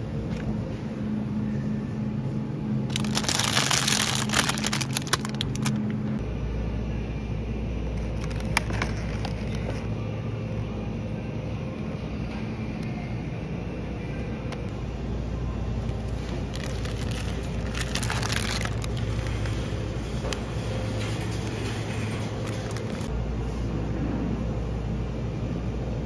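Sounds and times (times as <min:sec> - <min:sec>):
low hum: 0:00.0 - 0:26.0
plastic bag crinkling: 0:02.9 - 0:06.0, 0:16.0 - 0:19.6, 0:22.2 - 0:23.1.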